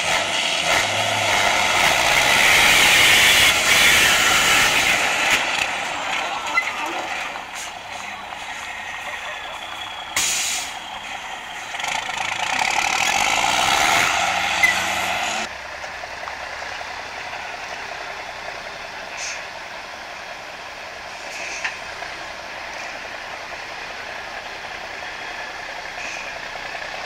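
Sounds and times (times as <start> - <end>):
truck diesel engine: 0.0 - 27.0
air brake hiss: 10.2 - 10.8.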